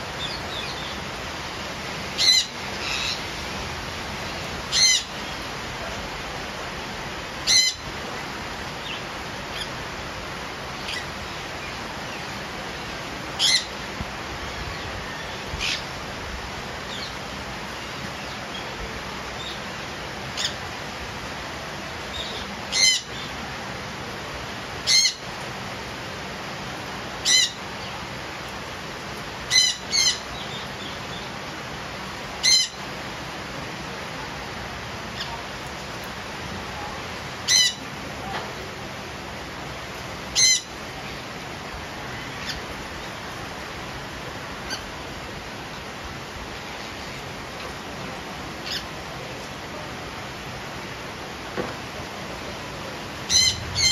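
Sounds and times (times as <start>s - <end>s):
rain hiss: 0.0s - 53.9s
parakeets screeching: 2.2s - 3.2s, 4.7s - 5.2s, 7.4s - 7.8s, 29.5s - 30.9s, 32.4s - 32.8s, 37.5s - 37.8s, 40.3s - 40.7s, 48.6s - 48.9s, 53.2s - 53.9s.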